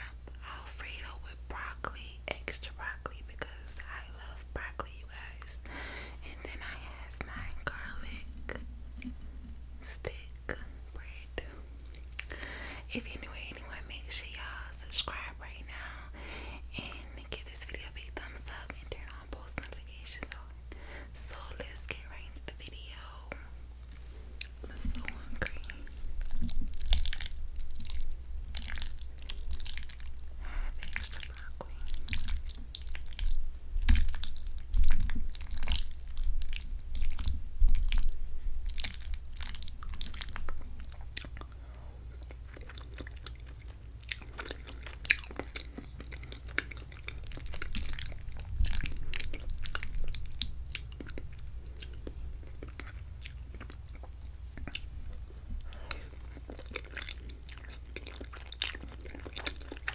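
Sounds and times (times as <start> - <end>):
close chewing mouth sounds: 11.9 - 15.9, 21.3 - 59.9.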